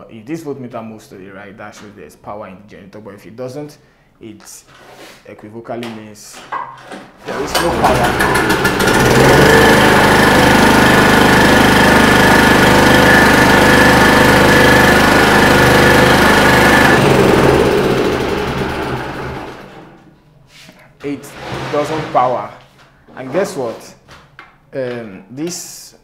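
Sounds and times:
petrol generator engine running: 7.3 - 20.0.

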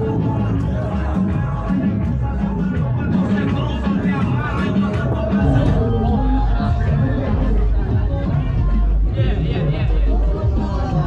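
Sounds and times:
background music: 0.0 - 11.0.

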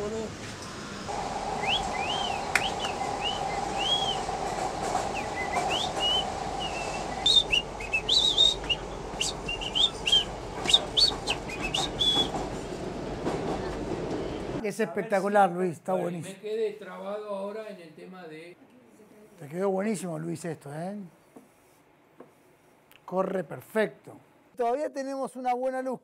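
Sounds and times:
subway car rumble: 0.0 - 14.6
short whistled notes: 1.6 - 4.3, 5.1 - 12.4.

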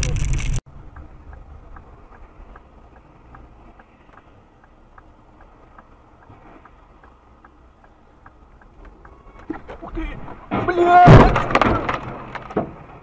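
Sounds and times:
car engine and road rumble: 0.0 - 13.0
turn signal ticking: 0.7 - 10.5.

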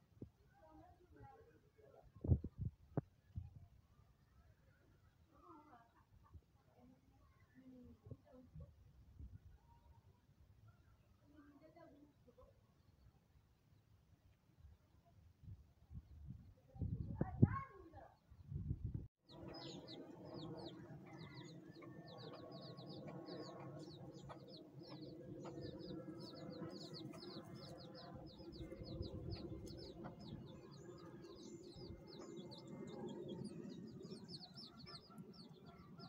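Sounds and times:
chicks peeping: 19.3 - 36.0.

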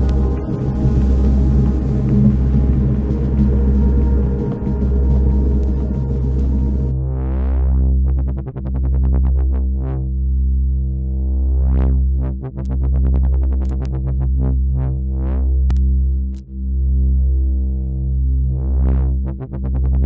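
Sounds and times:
hissy noise layer: 0.0 - 6.9
sustained synth chord: 0.0 - 8.0
deep synth bass note: 0.0 - 8.4.

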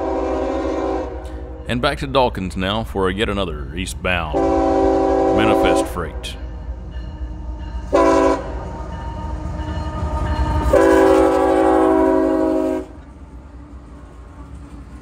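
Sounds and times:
locomotive air horn: 0.0 - 1.4, 4.4 - 5.9, 7.9 - 8.6, 10.7 - 13.0
locomotive rumbling past: 0.0 - 15.0.

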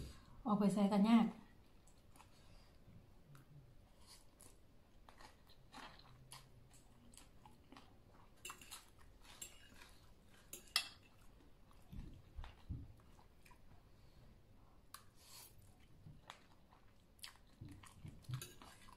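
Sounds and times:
person chewing and slurping noodles: 1.6 - 18.9
fork clinking and scraping in bowl: 8.4 - 11.3, 18.3 - 18.9.

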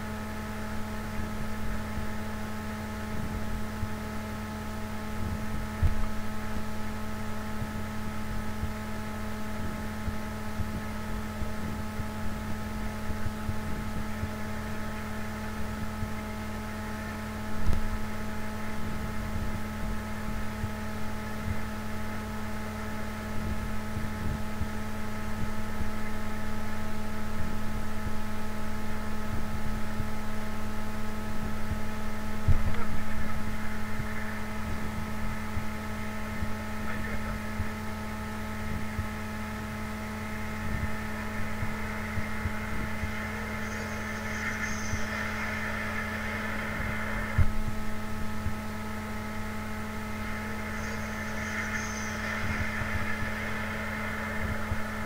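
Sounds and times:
train cabin hum with fixed tones: 31.2 - 55.0.

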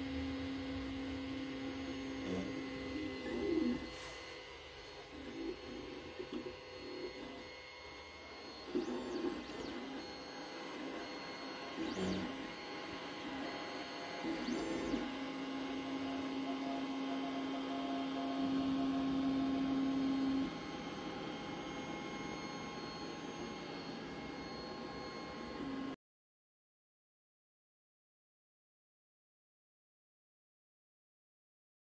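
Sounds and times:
stepper motors whirring: 0.6 - 25.9.

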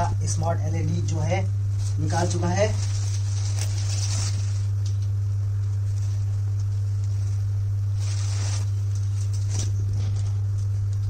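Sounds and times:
steady low hum: 0.0 - 11.0
plastic bag rustling: 1.8 - 4.8, 5.8 - 10.5.

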